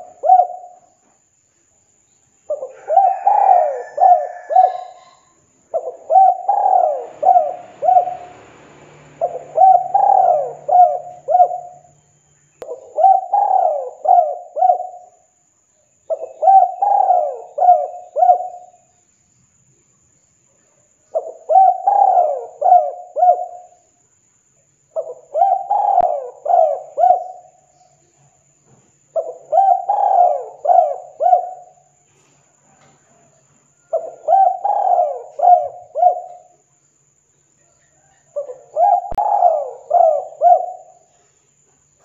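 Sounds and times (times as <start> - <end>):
dove cooing: 0.0 - 0.9, 2.5 - 11.9, 12.6 - 15.2, 16.1 - 18.8, 21.1 - 23.8, 25.0 - 27.7, 29.1 - 32.0, 33.8 - 36.6, 38.0 - 41.2.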